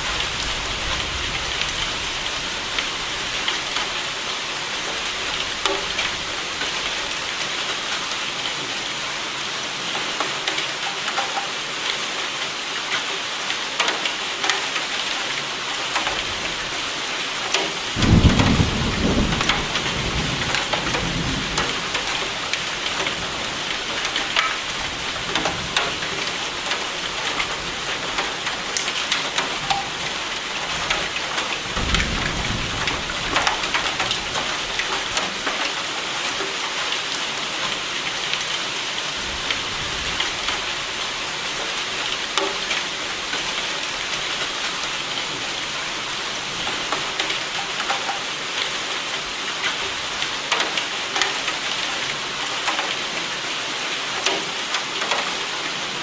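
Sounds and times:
heavy rain: 0.0s - 56.0s
thunder rumbling: 18.0s - 22.3s, 31.7s - 34.6s.

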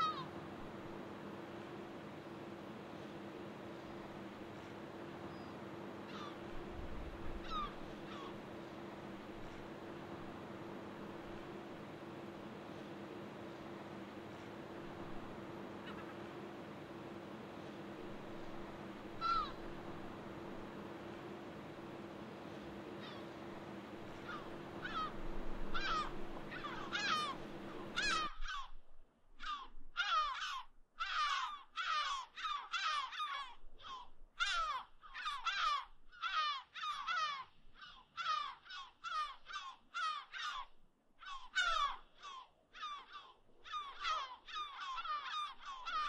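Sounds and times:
harsh bird calls: 0.0s - 0.4s, 5.2s - 6.6s, 7.3s - 9.1s, 15.7s - 16.6s, 18.2s - 19.8s, 22.7s - 28.7s, 29.4s - 46.0s
steady low hum: 0.0s - 29.9s.

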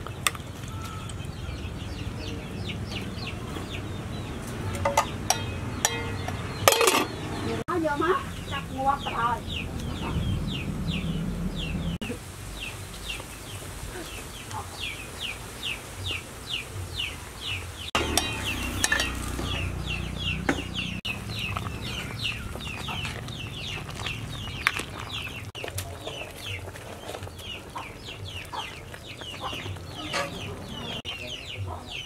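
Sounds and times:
metal ladle clinking on a pot: 4.7s - 7.1s, 18.0s - 19.6s, 30.0s - 30.5s
chicks peeping: 8.1s - 32.0s.

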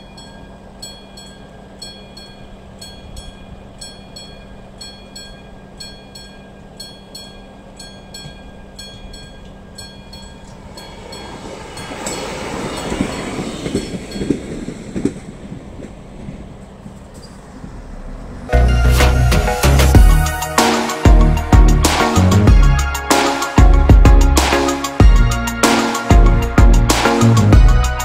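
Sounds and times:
train wheels clacking: 0.0s - 17.8s
diesel railcar passing: 0.0s - 28.0s.

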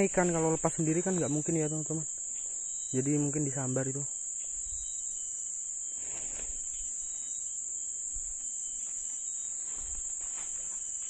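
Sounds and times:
insects droning: 0.0s - 11.0s
faint rustling: 5.9s - 7.3s, 8.2s - 11.0s.

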